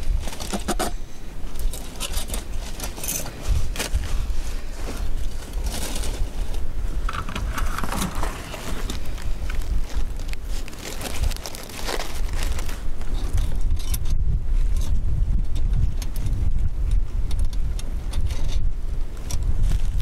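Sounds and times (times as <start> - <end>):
wind rumble on microphone: 0.0 - 20.0
dry leaves rustling: 1.5 - 13.6
metal trap clinking and scraping: 1.6 - 3.3.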